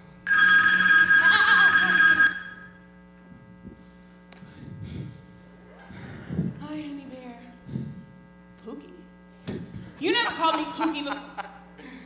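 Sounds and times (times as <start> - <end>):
electronic telephone ring: 0.3 - 2.8.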